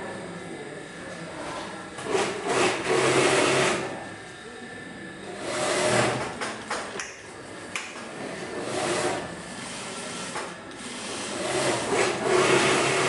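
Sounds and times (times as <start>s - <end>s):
sewing machine stitching: 2.0s - 3.9s, 5.4s - 6.3s, 8.6s - 13.0s.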